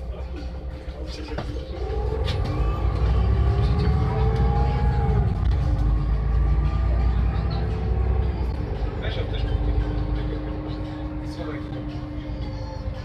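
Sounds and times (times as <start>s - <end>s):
bus pulling away and accelerating: 0.0s - 13.0s
drivetrain whine: 1.3s - 13.0s.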